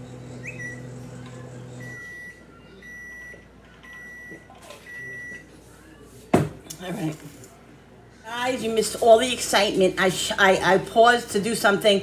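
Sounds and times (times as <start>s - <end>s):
microwave oven humming: 0.0s - 3.3s.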